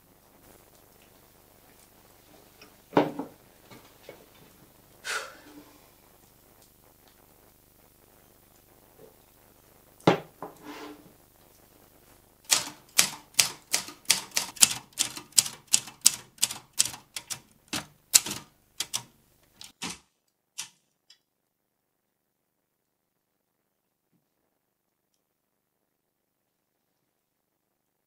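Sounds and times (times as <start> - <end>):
typewriter key strikes: 12.5 - 20.0.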